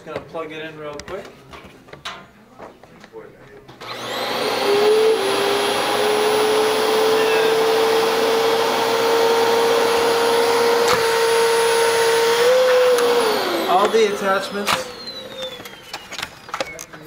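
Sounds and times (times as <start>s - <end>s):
vacuum cleaner motor whining: 3.8s - 17.0s.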